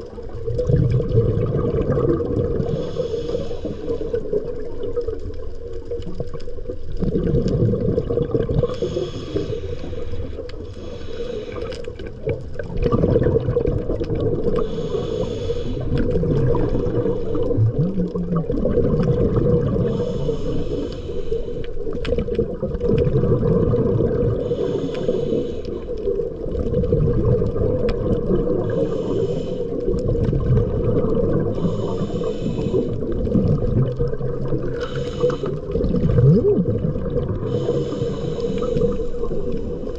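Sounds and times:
bubbling water rumble: 0.0 - 39.9
diver breathing through regulator: 2.4 - 4.7, 8.5 - 12.3, 13.9 - 17.9, 19.6 - 22.3, 23.7 - 26.4, 28.2 - 33.5, 34.6 - 36.2, 37.1 - 39.9.

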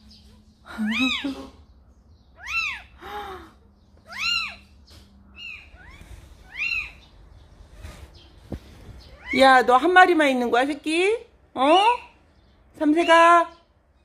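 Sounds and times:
kitten mewing: 0.7 - 1.6.

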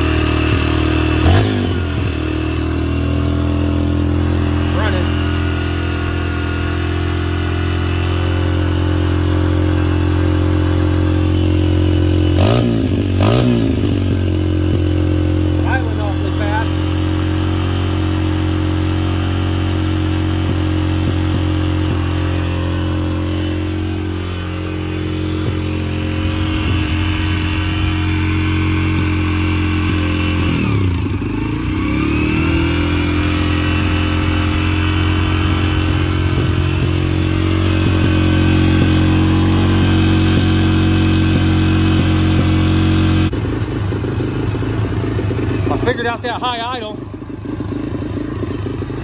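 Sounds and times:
motorcycle engine at high idle: 0.0 - 49.0.

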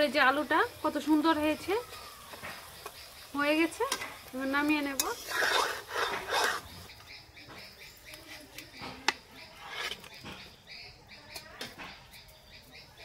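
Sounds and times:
small birds chirping: 0.0 - 13.0
metal spatula scraping: 3.9 - 6.9, 9.0 - 10.6.

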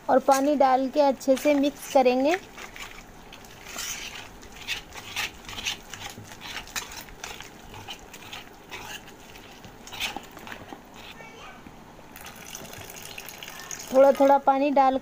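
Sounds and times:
whisk scraping metal plate: 1.3 - 11.3.

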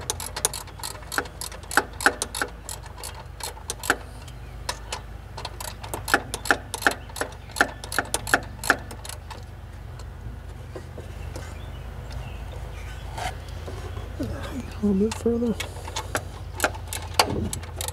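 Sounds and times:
ratchet wrench clicking: 0.0 - 9.4.

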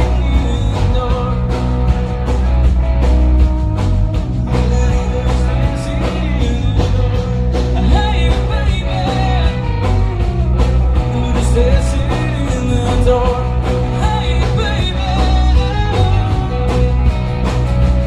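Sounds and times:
person singing: 0.0 - 1.8, 4.5 - 10.1, 11.0 - 17.0
drum kit: 0.0 - 18.0
guitars: 0.0 - 18.0.

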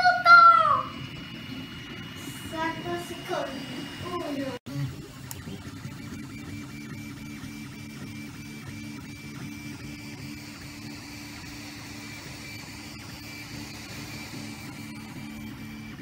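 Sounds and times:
steady high tone: 0.0 - 4.6
stepper motors whirring: 0.0 - 16.0.

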